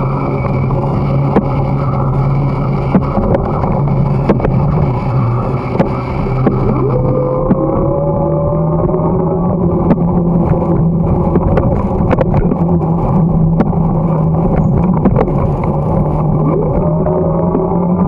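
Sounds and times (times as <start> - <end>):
steady hum: 0.0 - 18.0
wind rumbling on microphone: 0.0 - 18.0
rising high tone: 5.2 - 10.9.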